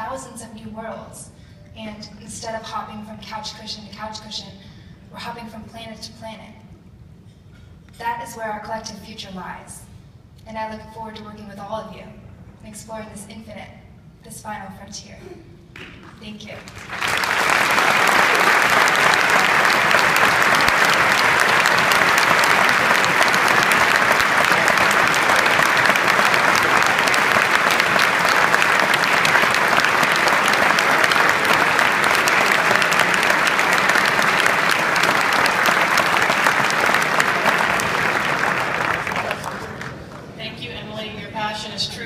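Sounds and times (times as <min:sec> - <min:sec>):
audience applauding: 0:15.8 - 0:40.3.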